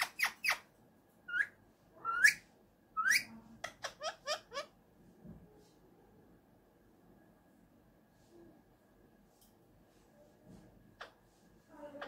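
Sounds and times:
parrot calling: 0.0s - 0.6s, 1.3s - 4.8s.

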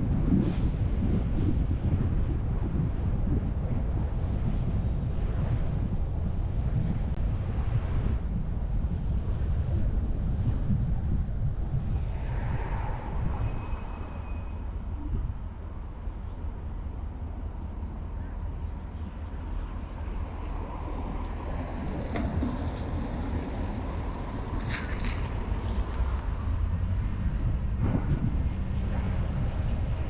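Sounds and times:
car passing: 11.8s - 30.0s.

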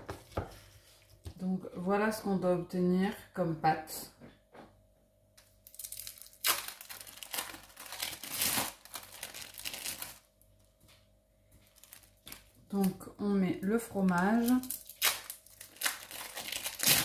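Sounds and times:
plastic film crinkling: 5.6s - 10.4s, 11.6s - 13.0s, 13.6s - 17.0s.

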